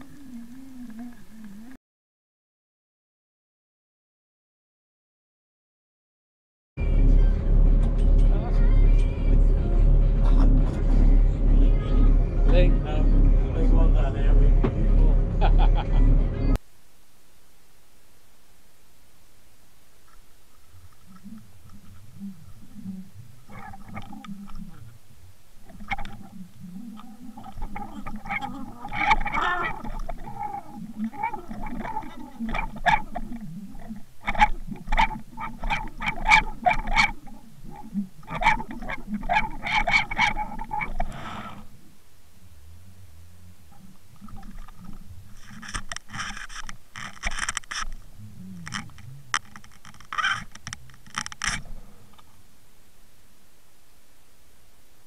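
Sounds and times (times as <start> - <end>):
low steady hum: 0.0 - 1.8, 6.8 - 55.0
underwater low drone: 0.0 - 1.8, 6.8 - 16.6, 17.8 - 54.1
underwater clicks and knocks: 20.0 - 25.0, 25.6 - 41.2, 43.8 - 52.3.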